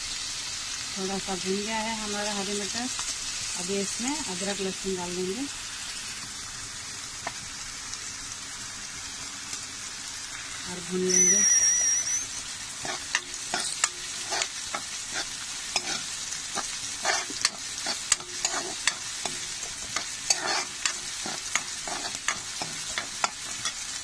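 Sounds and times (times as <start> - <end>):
vegetables sizzling in hot oil: 0.0 - 24.0
spoon scraping and knocking pan: 11.2 - 24.0.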